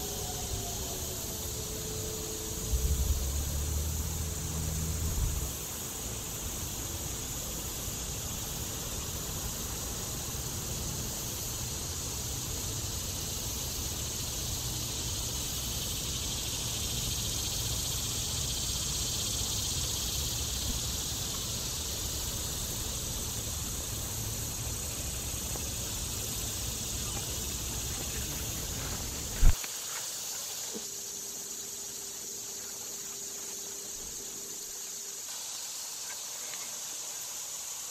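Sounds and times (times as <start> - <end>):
faint steady hum: 0.0 - 37.9
insect chorus: 0.0 - 37.9.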